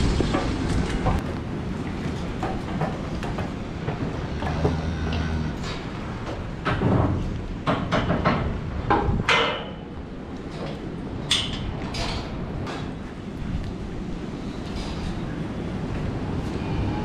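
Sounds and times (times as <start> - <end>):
hooves knocking on concrete: 0.1 - 9.8
metallic clanks: 10.6 - 12.9.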